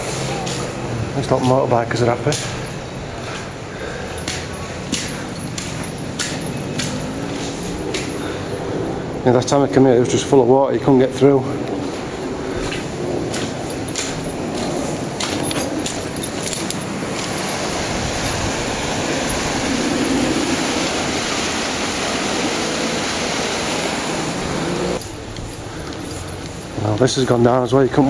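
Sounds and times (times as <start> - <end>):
footsteps on muddy path: 0.0 - 8.6, 11.5 - 20.5, 24.6 - 27.5
floodwater rushing: 0.0 - 28.0.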